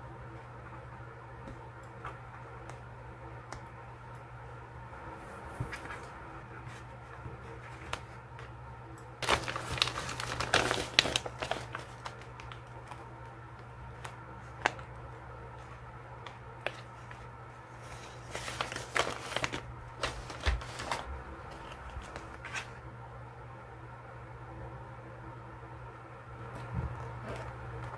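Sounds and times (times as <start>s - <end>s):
paper rustling and crinkling: 5.4s - 8.6s, 9.2s - 15.0s, 15.6s - 22.8s.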